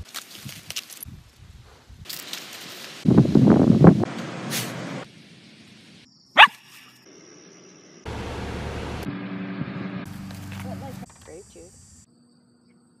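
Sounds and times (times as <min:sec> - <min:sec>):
dog barking: 0:06.4 - 0:06.6.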